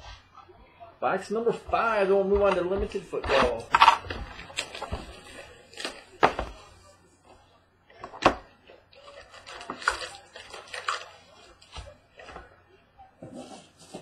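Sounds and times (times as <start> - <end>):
wrapper and cards crinkling: 9.0 - 11.8.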